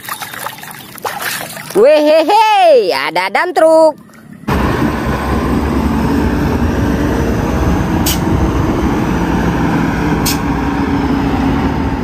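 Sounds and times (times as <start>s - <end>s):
truck diesel engine rumbling: 4.2s - 12.0s.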